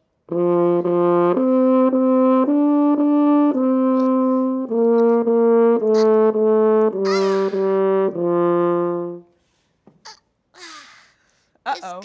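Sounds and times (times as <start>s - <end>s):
french horn melody: 0.2s - 9.4s.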